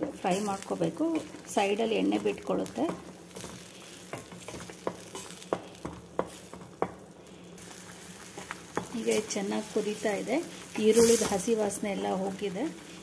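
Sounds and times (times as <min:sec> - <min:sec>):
wooden spatula stirring: 0:00.0 - 0:07.0, 0:07.6 - 0:13.0
paste sizzling in hot oil: 0:00.0 - 0:13.0.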